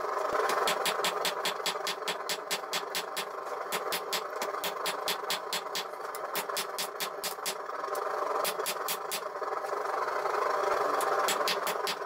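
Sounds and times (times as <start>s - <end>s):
steady mechanical roar: 0.0s - 12.0s
hammer striking hot steel on anvil: 0.5s - 7.6s, 11.0s - 12.0s.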